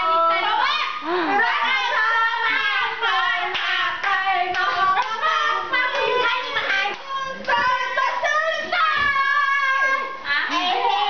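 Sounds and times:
hands clapping: 0:03.5 - 0:05.2, 0:05.9 - 0:07.8.

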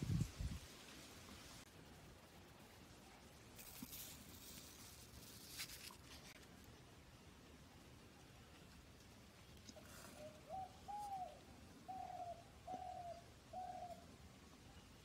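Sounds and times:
bird hooting: 0:10.1 - 0:14.0.

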